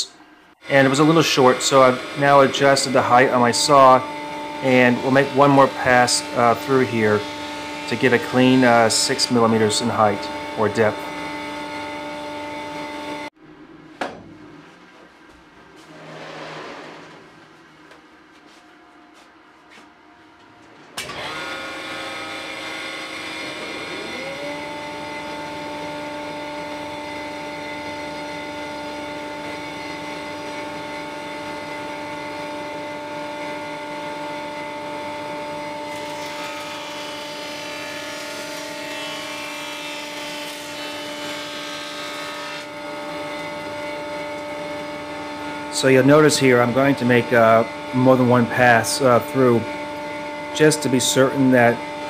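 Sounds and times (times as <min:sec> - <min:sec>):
table saw whining: 0:00.0 - 0:13.3, 0:20.9 - 0:52.0
saw cutting plywood: 0:00.8 - 0:11.8, 0:21.0 - 0:28.4, 0:35.6 - 0:43.5.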